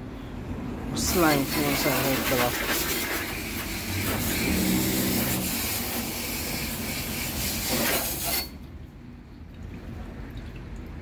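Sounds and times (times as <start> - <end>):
hose water spraying hiss: 1.1 - 8.5.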